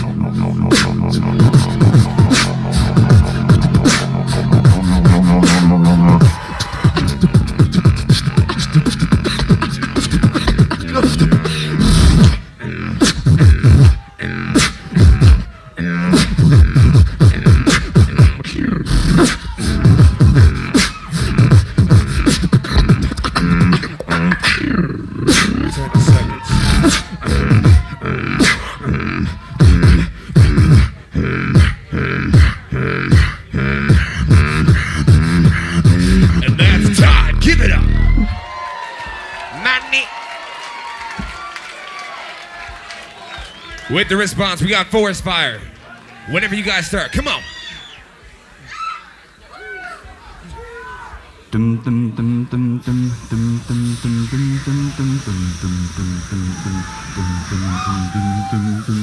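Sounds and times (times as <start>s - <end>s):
beatboxing through microphones: 0.0s - 38.4s, 51.5s - 59.0s.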